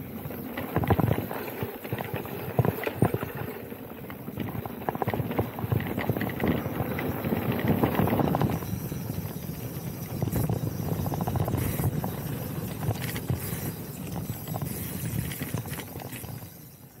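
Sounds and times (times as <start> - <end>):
bike tyres on dirt: 0.0 - 17.0
bike knocks and rattles: 0.1 - 16.6.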